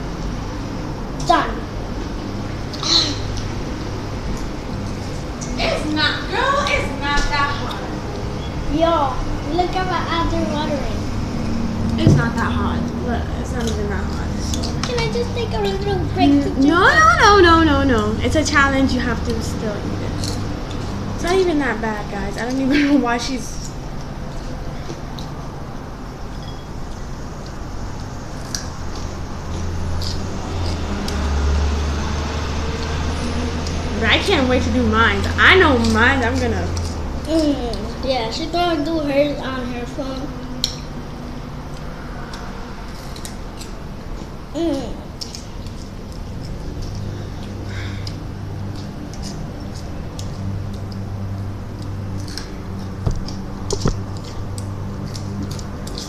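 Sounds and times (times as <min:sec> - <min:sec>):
sharp knocks: 0:12.0 - 0:12.5
snacks clicking in bowl: 0:45.2 - 0:56.0.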